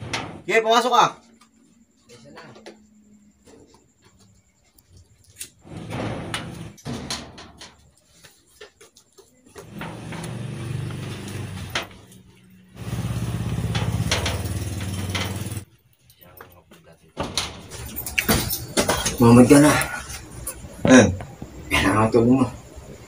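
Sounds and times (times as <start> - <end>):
engine running: 9.6 - 15.6.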